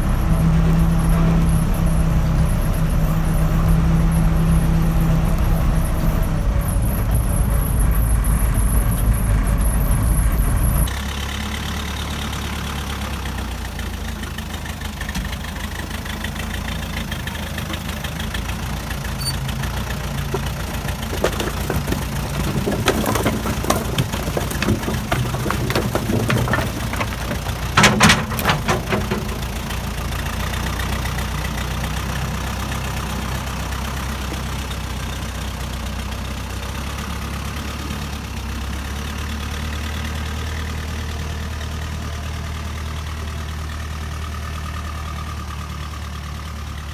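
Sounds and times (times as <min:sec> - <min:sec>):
backhoe engine running: 0:00.0 - 0:46.9
logs clattering and tumbling: 0:19.2 - 0:31.0.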